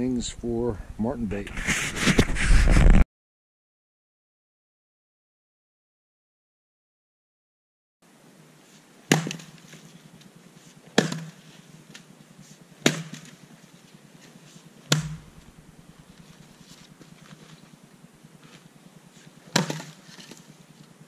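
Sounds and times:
axe splitting firewood: 0:09.1 - 0:09.7, 0:10.8 - 0:12.1, 0:12.8 - 0:13.5, 0:14.3 - 0:16.6, 0:19.4 - 0:20.4.

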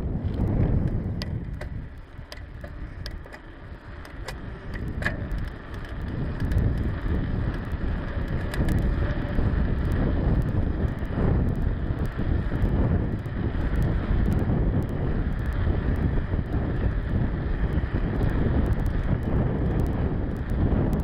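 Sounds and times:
bicycle rolling on asphalt: 0:00.0 - 0:21.0
bike clicks and rattles: 0:00.0 - 0:21.0
wind buffeting microphone: 0:00.0 - 0:21.0.

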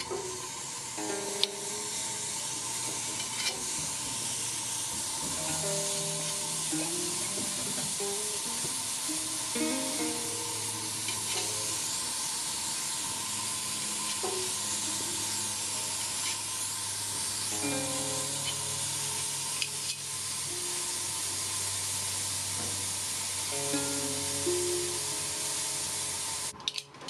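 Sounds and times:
vegetables sizzling on a grill pan: 0:00.0 - 0:27.0
metal tongs clicking on a pan: 0:01.2 - 0:02.1, 0:11.0 - 0:11.9, 0:17.8 - 0:20.1, 0:26.6 - 0:27.0.

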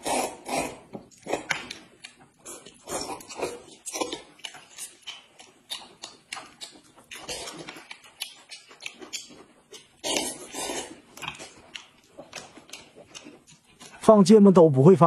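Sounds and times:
people slurping noodles: 0:00.0 - 0:01.7, 0:02.4 - 0:04.2, 0:10.0 - 0:11.6
chewing: 0:00.0 - 0:14.0.

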